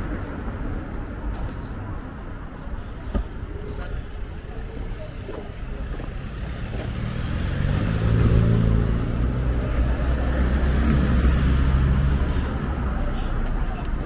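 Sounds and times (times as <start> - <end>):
car driving past: 6.7 - 13.0.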